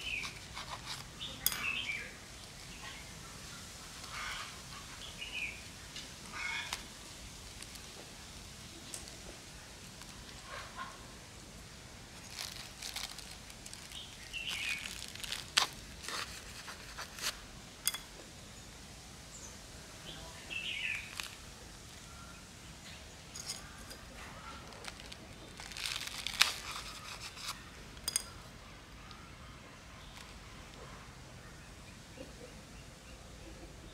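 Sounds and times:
potting soil crumbling: 0.0 - 4.5, 5.9 - 18.2, 20.5 - 22.0, 22.8 - 28.7
plastic bag crinkling: 12.0 - 17.4, 23.4 - 28.2.

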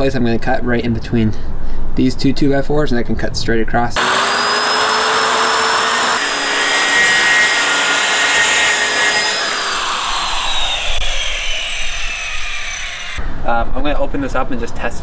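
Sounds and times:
circular saw cutting plywood: 4.0 - 13.2
saw blade spinning down: 4.0 - 13.2.

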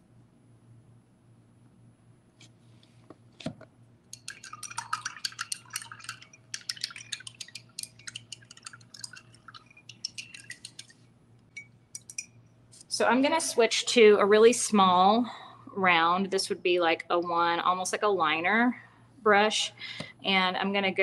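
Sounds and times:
paintbrush rattling in glass jar: 4.2 - 12.4.

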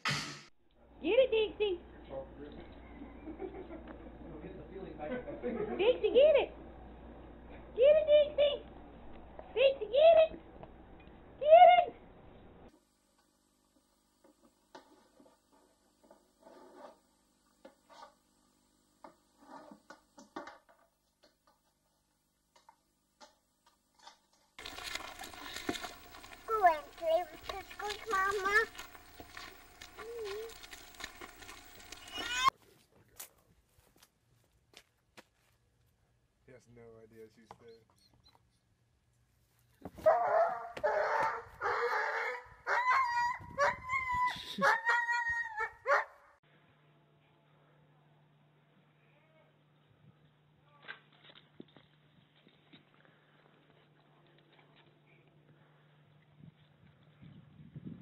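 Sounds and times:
faint low hum: 0.7 - 18.2, 24.6 - 44.8, 45.9 - 58.0
dog whining: 31.8 - 32.5
dog barking: 40.0 - 43.8, 44.6 - 46.3.

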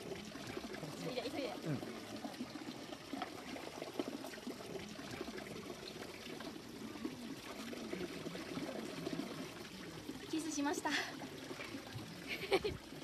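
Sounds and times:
water trickling into a pool: 0.0 - 13.0.

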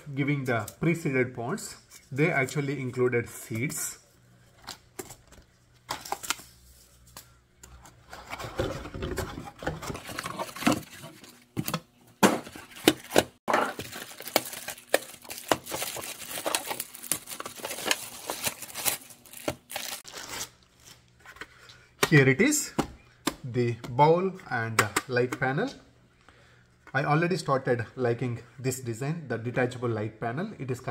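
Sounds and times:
plastic bag crinkling: 13.6 - 20.4.

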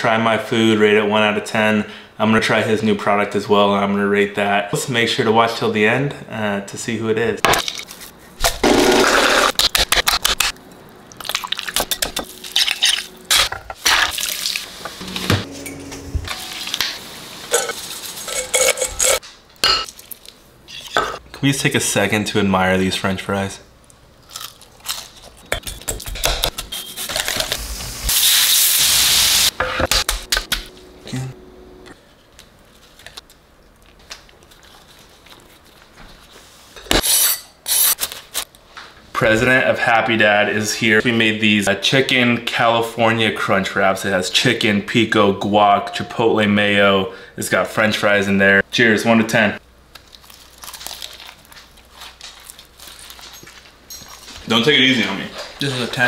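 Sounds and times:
dishes and utensils clinking: 17.5 - 19.9.

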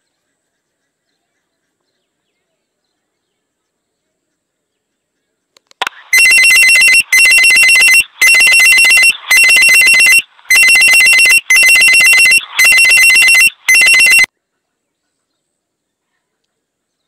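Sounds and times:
electronic trilling ring: 6.1 - 14.3.

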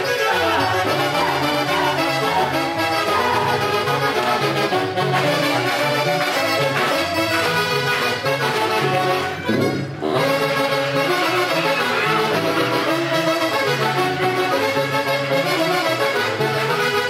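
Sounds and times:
repeating bass line: 0.0 - 7.8
band playing dance music: 0.0 - 17.0
wind instruments playing tune: 0.0 - 17.0.

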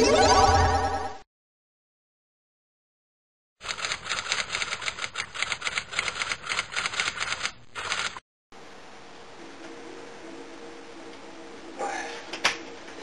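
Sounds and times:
laptop keyboard clicking: 3.6 - 8.2.

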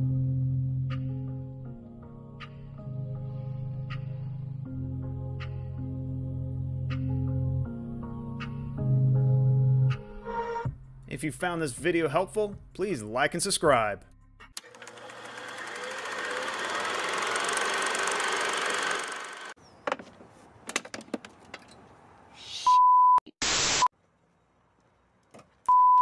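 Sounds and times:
burst of static: 23.4 - 23.9
electronic beep: 25.7 - 26.0.

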